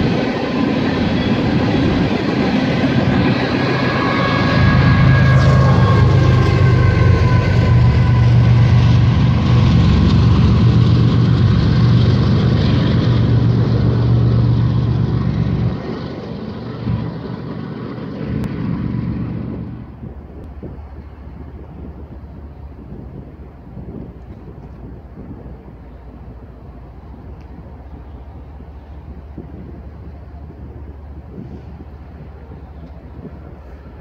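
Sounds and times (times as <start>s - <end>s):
whining tones falling in pitch: 0.0s - 17.5s
diesel locomotive engine drone: 0.0s - 34.0s
train rumble: 0.0s - 34.0s.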